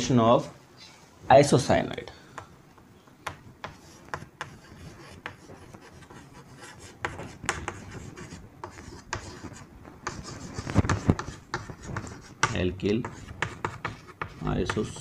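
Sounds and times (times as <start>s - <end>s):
chalk tapping and scraping on board: 3.2s - 15.0s.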